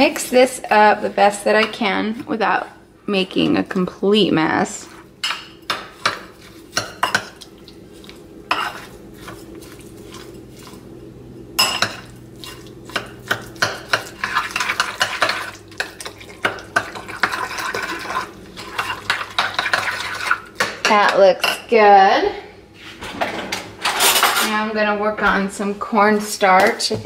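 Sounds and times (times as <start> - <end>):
spoon scraping glass bowl: 8.5 - 10.8.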